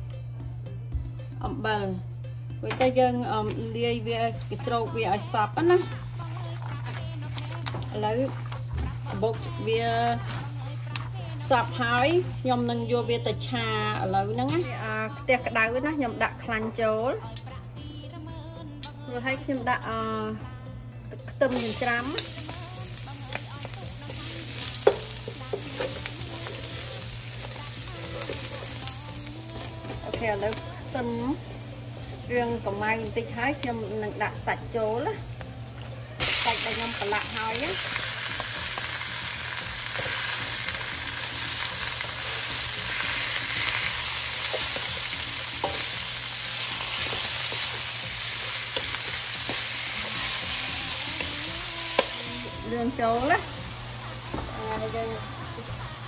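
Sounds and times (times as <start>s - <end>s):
garlic sizzling in hot oil: 21.5s - 56.0s.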